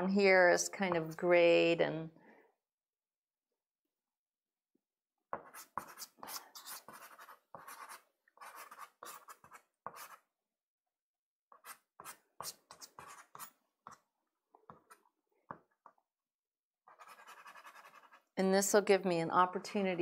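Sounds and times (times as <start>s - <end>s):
pastel scratching on paper: 5.4s - 10.3s, 11.5s - 14.0s, 16.9s - 18.3s.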